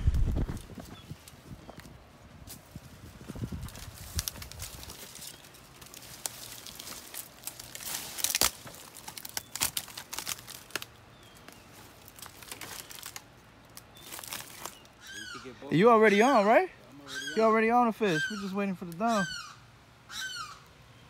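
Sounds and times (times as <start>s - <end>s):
dry leaves crackling underfoot: 0.0s - 15.6s
twig snapping: 3.6s - 14.9s.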